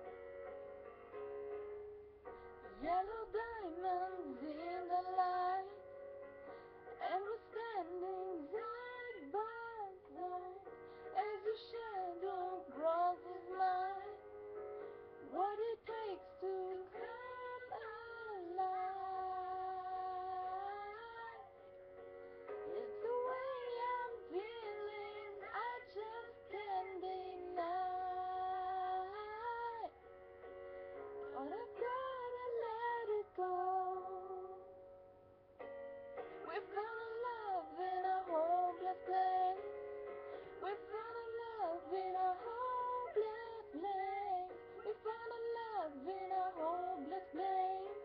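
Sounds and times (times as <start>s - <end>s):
woman singing: 2.8s - 5.8s, 7.0s - 14.2s, 15.2s - 21.5s, 22.7s - 30.0s, 31.3s - 34.7s, 36.4s - 39.7s, 40.5s - 48.0s.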